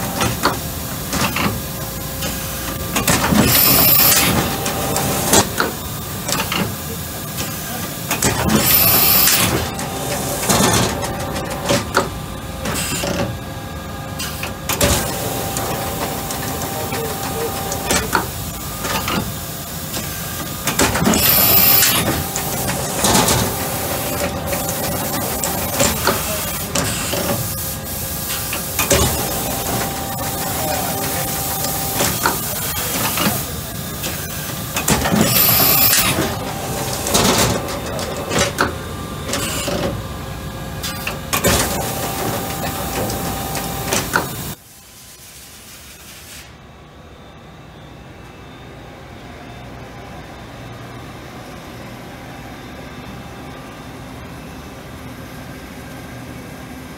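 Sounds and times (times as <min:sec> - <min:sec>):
machine hum: 0:00.0 - 0:06.5, 0:08.2 - 0:13.2, 0:14.6 - 0:44.6.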